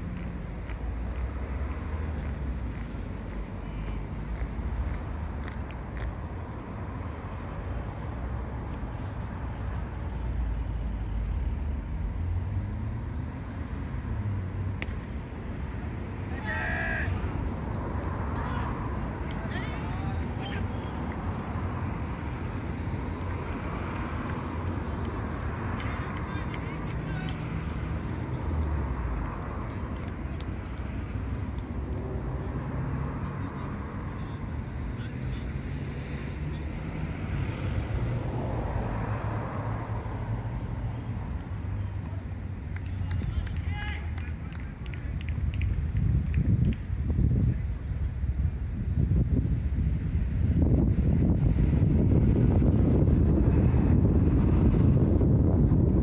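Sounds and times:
traffic rumble: 0:00.0 - 0:56.0
person shouting: 0:16.3 - 0:17.3.

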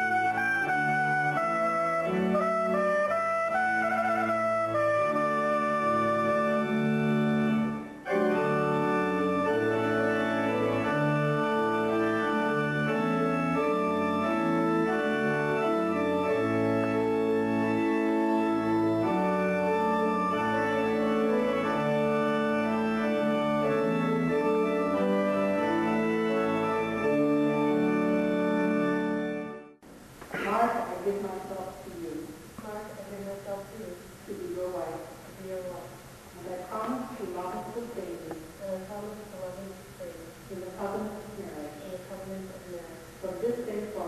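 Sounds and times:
organ playing held chords: 0:00.0 - 0:29.8.

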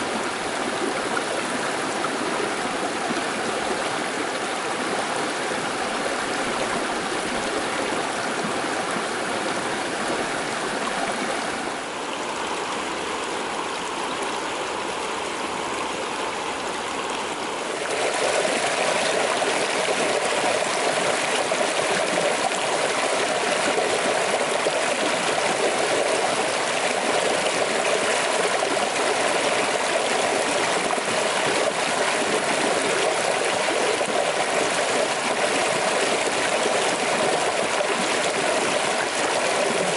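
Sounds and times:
creek rippling over rocks: 0:00.0 - 0:39.9
cascade pouring between boulders: 0:17.7 - 0:39.9.

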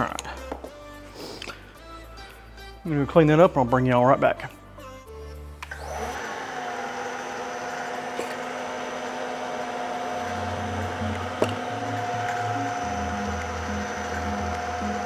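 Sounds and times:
milling machine spindle whine: 0:05.8 - 0:15.0.

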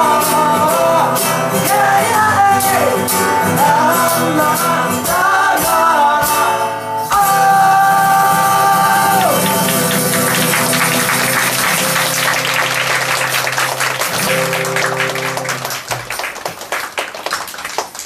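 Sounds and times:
acoustic guitar chords: 0:00.0 - 0:16.1
audience applause: 0:09.1 - 0:18.0.

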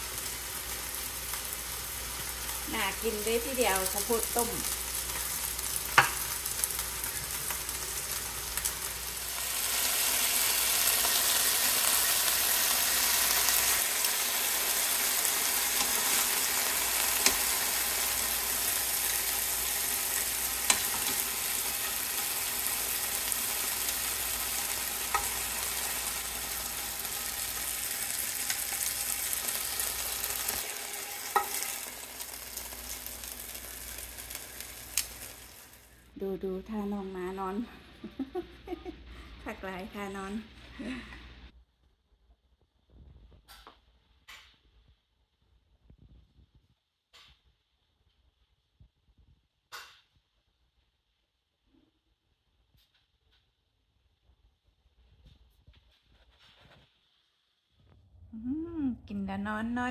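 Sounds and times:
chicken sizzling in hot oil: 0:00.0 - 0:36.1
metal tongs clicking on pan: 0:20.6 - 0:21.2, 0:31.3 - 0:31.6.

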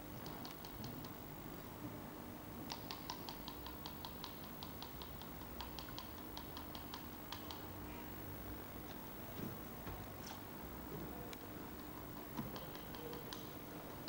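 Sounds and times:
light sharp clicking taps: 0:02.7 - 0:07.7, 0:11.3 - 0:13.6.

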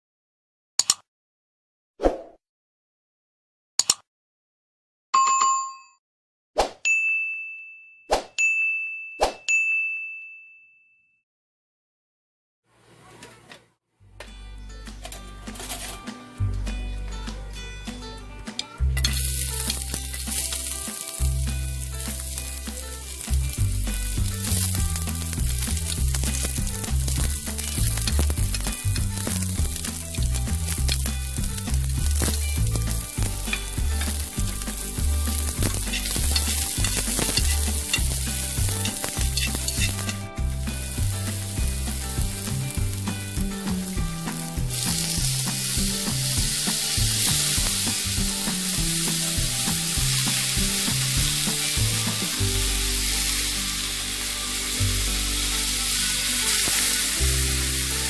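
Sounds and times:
onion sizzling in oil: 0:19.0 - 0:58.0.

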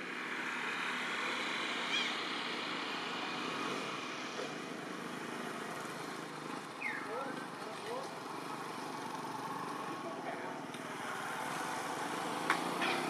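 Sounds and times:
distant traffic noise: 0:00.0 - 0:13.0
high chirp: 0:06.8 - 0:07.1.

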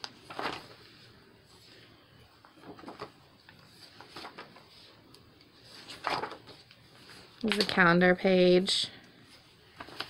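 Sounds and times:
paper pages turning: 0:00.0 - 0:01.8, 0:02.4 - 0:07.7, 0:09.4 - 0:10.0
pages rustling: 0:00.0 - 0:07.9, 0:09.2 - 0:10.0.

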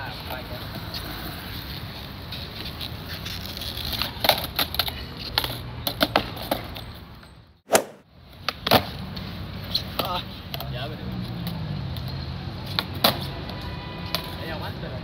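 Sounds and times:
skateboard wheels rolling on stone: 0:01.7 - 0:06.9
skateboard clacking on ground: 0:02.6 - 0:06.9.

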